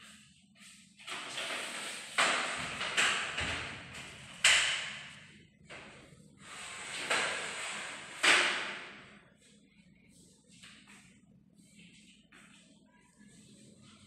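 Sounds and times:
sudden knocks with hissing scrape: 6.4 - 9.0.

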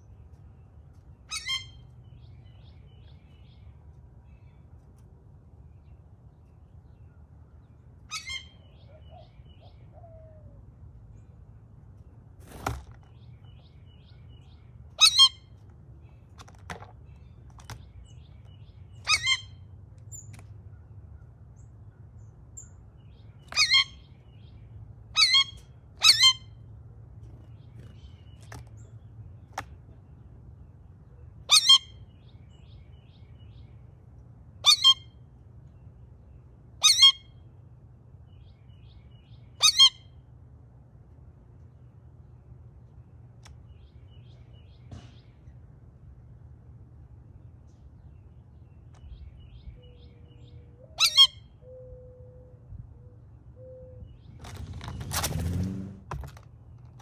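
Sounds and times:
faint low hum: 0.0 - 55.0
blue jay harsh calls: 1.3 - 2.3, 8.1 - 9.3, 14.9 - 15.6, 18.9 - 20.2, 23.4 - 24.3, 25.1 - 26.6, 31.4 - 32.3, 34.6 - 35.1, 36.8 - 37.3, 39.4 - 40.1, 50.9 - 51.6.

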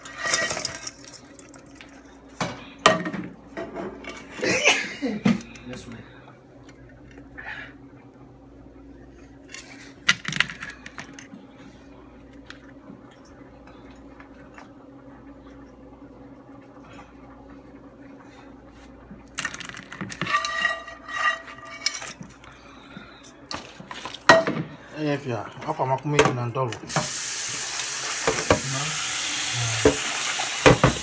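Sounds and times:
frying pan clattering: 29.8 - 31.0.

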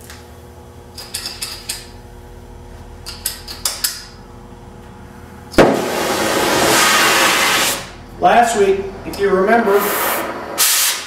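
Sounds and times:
torch igniting pop: 5.6 - 6.8
torch flame hissing: 5.6 - 8.0.

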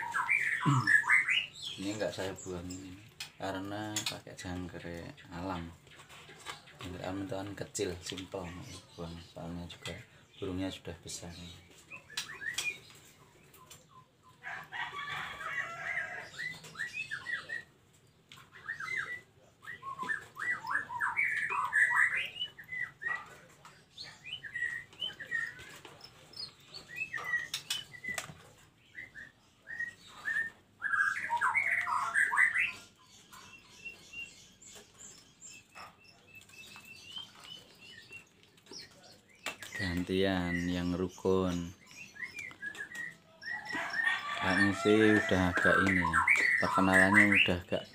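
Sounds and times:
birds chattering: 0.0 - 47.9
wings fluttering in a cage: 17.6 - 29.2.

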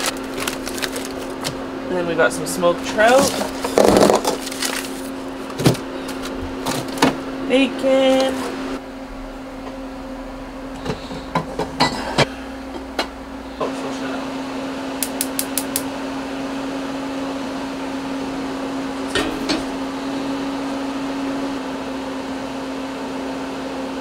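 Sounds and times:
gas burner humming: 0.0 - 24.0
gas igniter clicks: 15.0 - 15.9.

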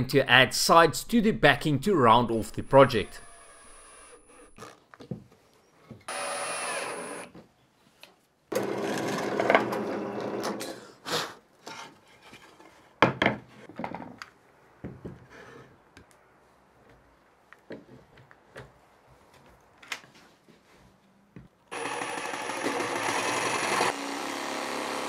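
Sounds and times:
cordless drill running: 3.1 - 4.7, 6.1 - 7.3, 21.7 - 25.0
drill press boring into wood: 6.1 - 7.3, 21.7 - 25.0.

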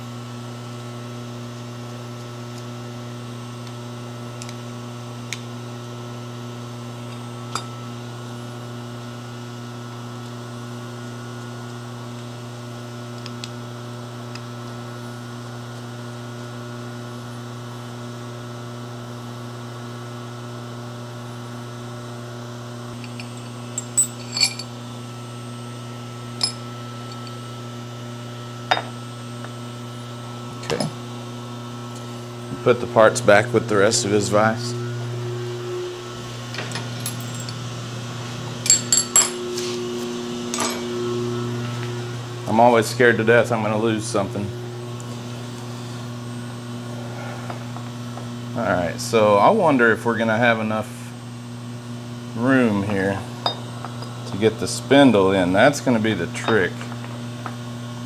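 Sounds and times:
electrical mains hum: 0.0 - 58.0
metallic clinks of steel parts: 23.0 - 24.7.

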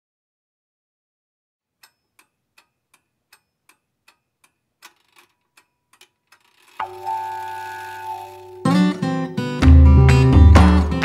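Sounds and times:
clock-like ticking: 1.8 - 8.7
ringing musical tone: 6.8 - 10.1.

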